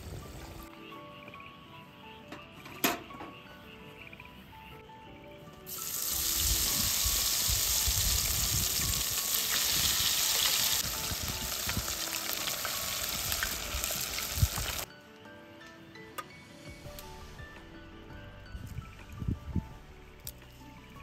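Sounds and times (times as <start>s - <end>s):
food deep-frying in oil: 5.7s - 14.9s.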